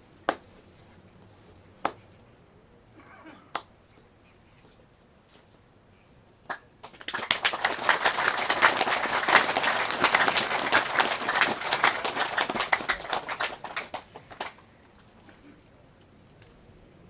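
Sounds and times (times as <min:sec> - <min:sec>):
crowd clapping: 0:06.5 - 0:14.6.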